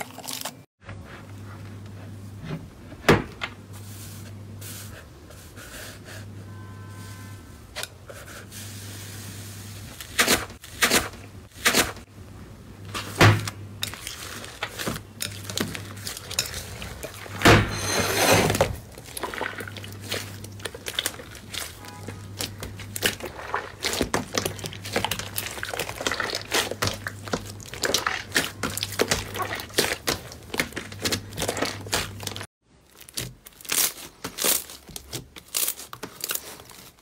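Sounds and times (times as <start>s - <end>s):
slime crackling squishes: 18.9s - 37.0s.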